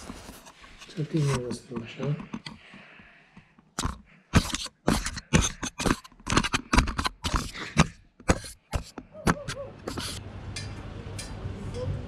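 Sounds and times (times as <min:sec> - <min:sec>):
fingers scraping on microphone: 0:03.8 - 0:10.2.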